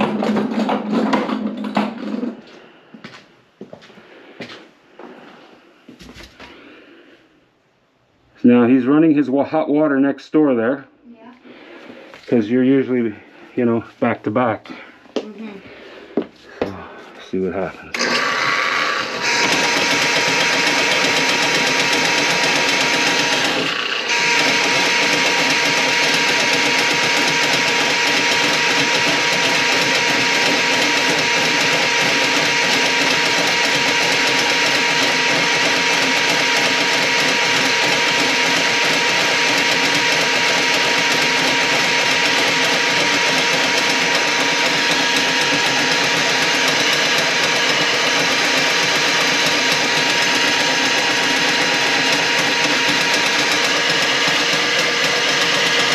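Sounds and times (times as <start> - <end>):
drain-cleaning machine motor whine: 17.6 - 55.9.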